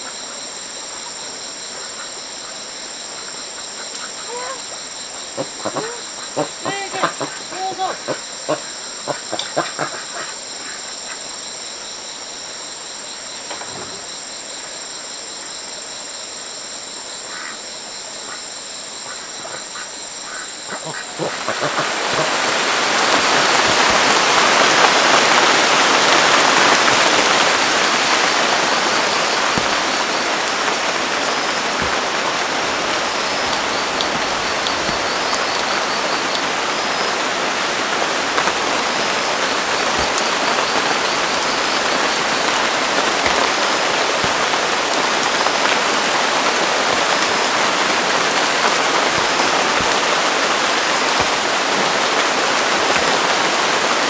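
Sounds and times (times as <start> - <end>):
heavy rain on water and leaves: 0.0 - 54.0.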